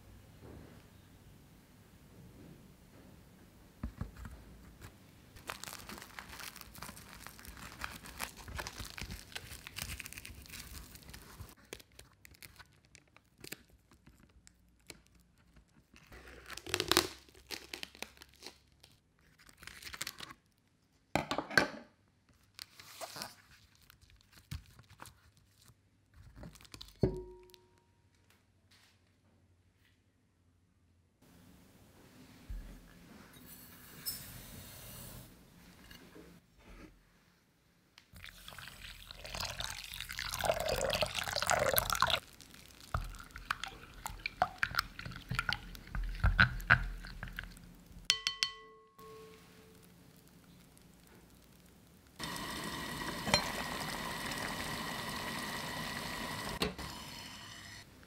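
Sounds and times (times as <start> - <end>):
plastic sheet crinkling and rustling: 4.8 - 20.6, 22.4 - 27.0, 42.0 - 45.8.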